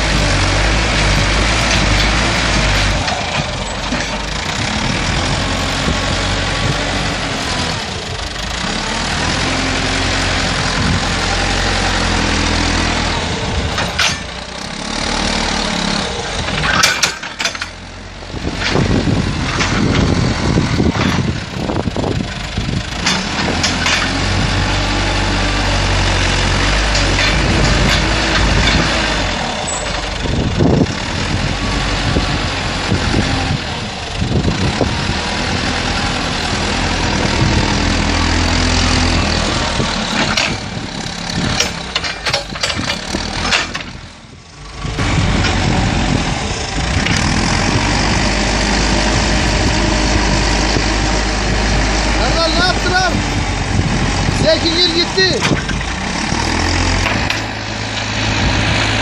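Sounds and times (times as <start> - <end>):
diesel engine working under load: 0.0 - 59.0
metal knocks and clanks: 0.2 - 7.0, 13.6 - 14.5, 16.4 - 21.5, 22.8 - 24.7, 25.7 - 30.9, 38.2 - 44.2, 54.3 - 58.1.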